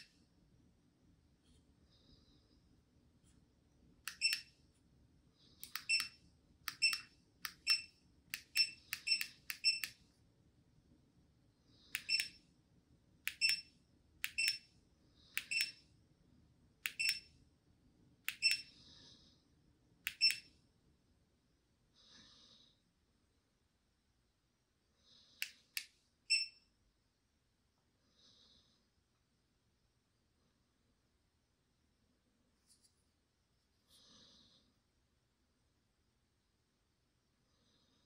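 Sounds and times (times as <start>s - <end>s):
faint steady hum: 0.0s - 38.0s
short electronic beeps: 8.6s - 9.9s, 26.3s - 26.6s.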